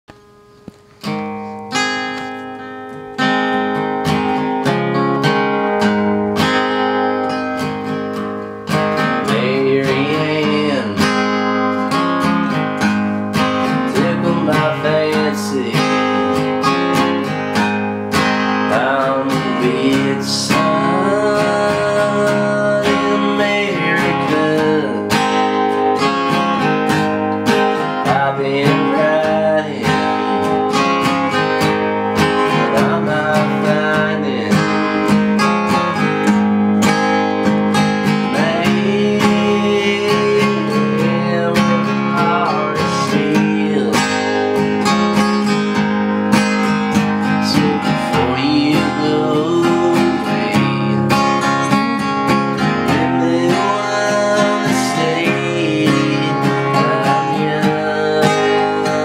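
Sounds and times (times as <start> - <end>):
acoustic guitar strumming: 0.1 - 59.0
man singing: 9.0 - 11.4, 13.7 - 16.7, 18.7 - 25.7, 27.5 - 31.5, 32.3 - 36.1, 38.2 - 44.7, 47.2 - 59.0.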